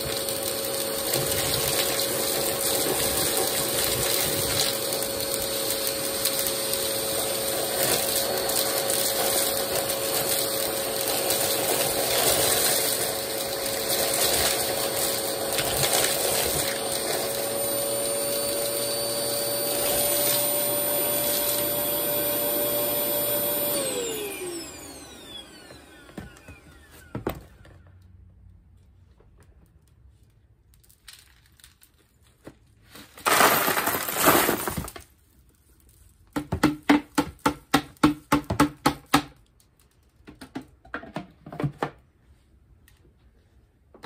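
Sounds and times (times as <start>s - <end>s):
vacuum cleaner running: 0.0s - 28.0s, 33.3s - 34.9s
motor spinning down: 17.6s - 27.1s
small objects clattering up a tube: 30.6s - 37.4s.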